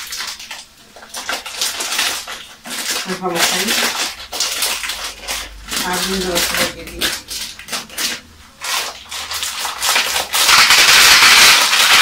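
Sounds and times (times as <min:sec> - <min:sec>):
plastic packaging crinkling: 0:00.0 - 0:12.0
sausage sizzling in a frying pan: 0:00.0 - 0:12.0.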